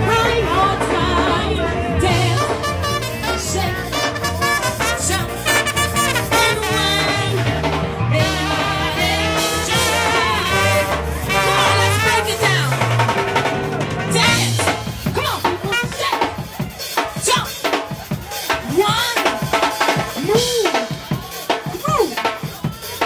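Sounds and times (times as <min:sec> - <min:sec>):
sousaphone bass line: 0:00.0 - 0:16.4
brass band playing upbeat tune: 0:00.0 - 0:23.0.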